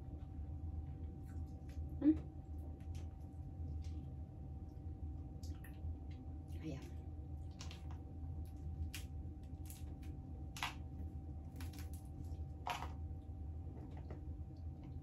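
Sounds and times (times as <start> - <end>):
steady low hum: 0.0 - 15.0
crab shells cracking: 8.6 - 10.9, 11.5 - 13.0.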